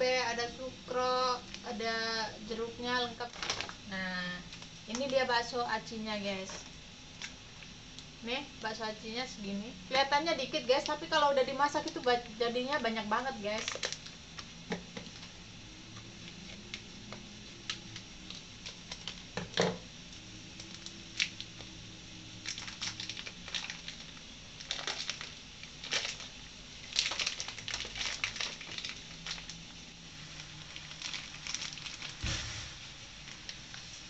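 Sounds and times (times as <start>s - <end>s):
plastic packet crinkling: 3.1s - 3.9s, 13.3s - 15.4s, 17.6s - 19.4s, 20.6s - 21.7s, 22.4s - 29.7s, 30.3s - 32.6s.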